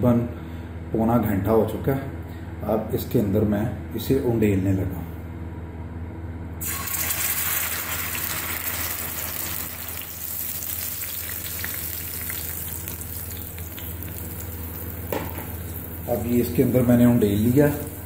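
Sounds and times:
liver sizzling in hot oil: 6.6 - 16.3, 17.2 - 18.0.

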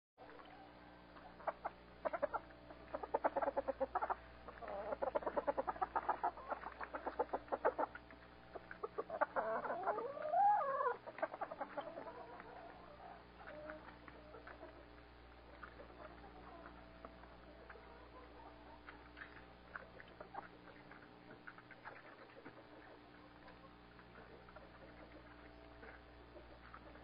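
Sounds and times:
chickens clucking: 0.2 - 27.0
chicken drawn-out call: 0.4 - 21.0.

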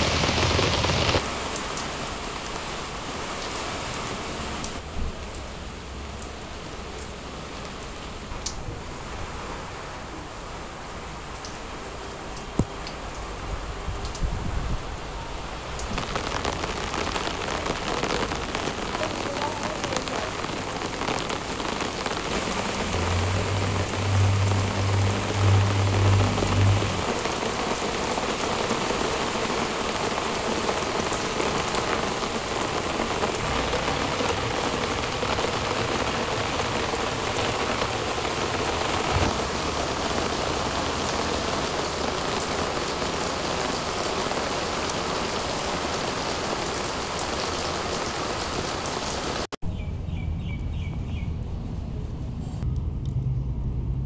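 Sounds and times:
rain pattering on leaves and paving: 0.0 - 49.5
low droning hum: 49.9 - 54.0.

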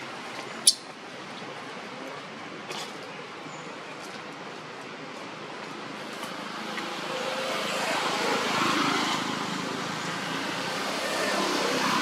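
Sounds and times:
passing vehicle engine: 6.4 - 12.0.

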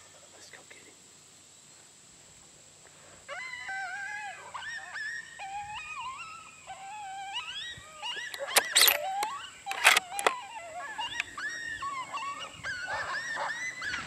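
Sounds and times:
coyote whines and yips: 3.3 - 14.0.

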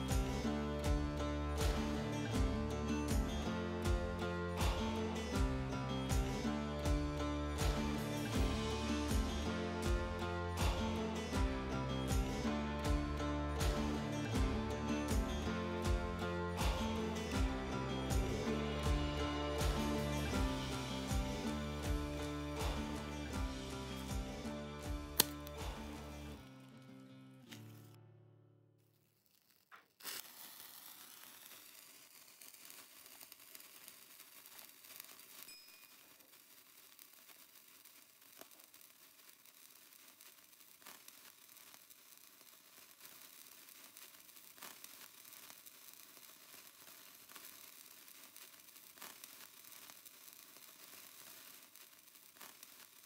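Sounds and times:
flame hissing and crackling: 0.0 - 11.4, 13.6 - 27.9, 29.0 - 53.0
lighter clicking: 25.2 - 25.6
lighter strike: 25.2 - 26.1.

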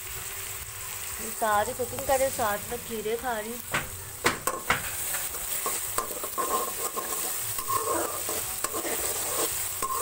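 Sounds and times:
onions sizzling in oil: 0.0 - 10.0
spatula scraping a pan: 4.5 - 10.0.

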